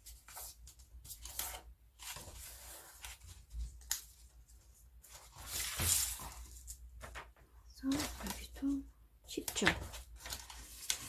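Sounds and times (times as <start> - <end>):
paper rustling and crinkling: 0.0 - 8.6, 9.4 - 11.0.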